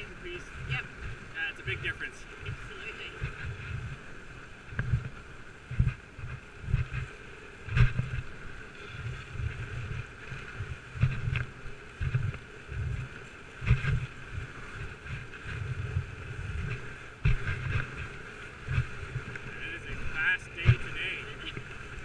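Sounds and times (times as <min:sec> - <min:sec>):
sled runners hissing on snow: 0:13.8 - 0:21.6.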